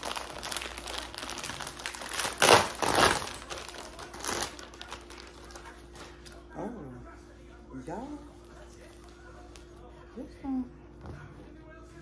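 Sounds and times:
plastic packaging crinkling: 0.0 - 6.4.

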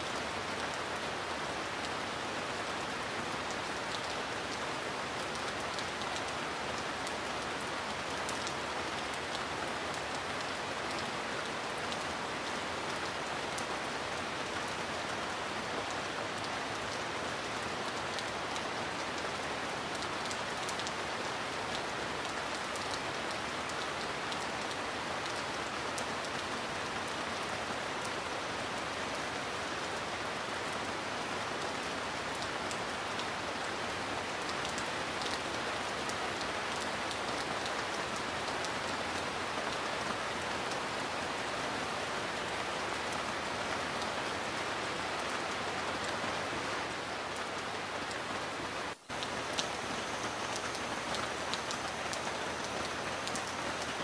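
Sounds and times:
heavy rain hiss: 28.6 - 54.0.

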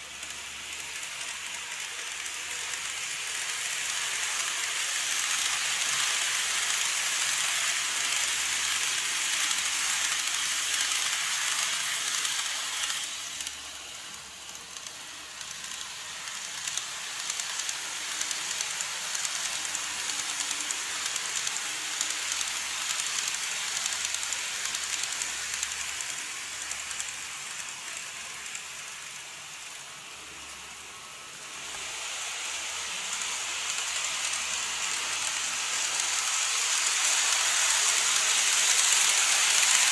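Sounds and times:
model train wheels rolling: 0.0 - 39.9.

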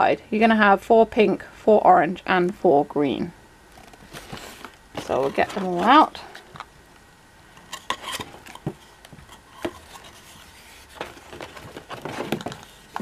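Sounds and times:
soft rubbing: 8.0 - 13.0
plastic cases clicking and knocking: 11.0 - 13.0.

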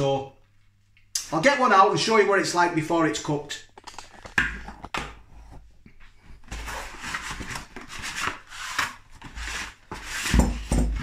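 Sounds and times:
cardboard scraping and rubbing: 6.4 - 11.0.

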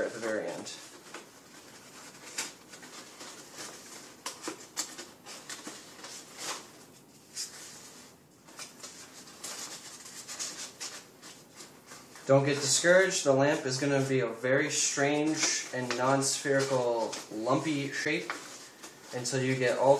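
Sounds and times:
stiff paper crinkling: 0.0 - 19.9.

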